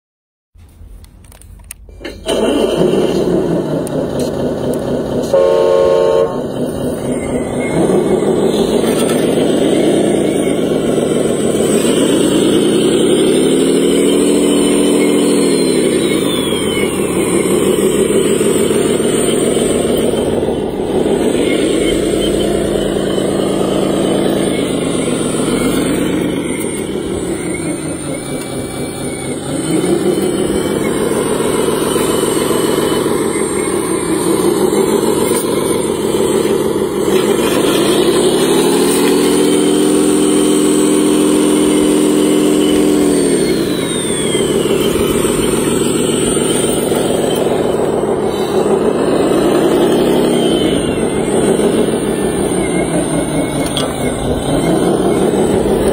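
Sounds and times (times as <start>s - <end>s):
toy loader motor running: 2.0s - 55.9s.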